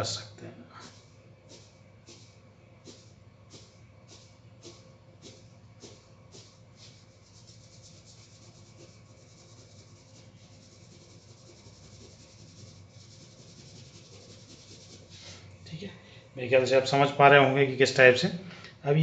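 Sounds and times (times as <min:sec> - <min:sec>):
pencil scratching on paper: 0:00.8 - 0:15.2.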